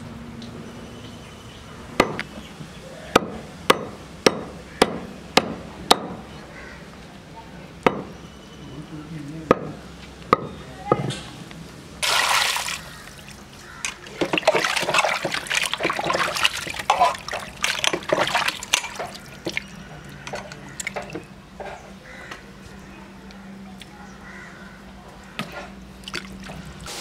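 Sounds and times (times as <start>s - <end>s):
water splashing and dripping: 12.0s - 21.2s, 26.0s - 26.9s
hands swishing meat in water: 14.1s - 19.7s.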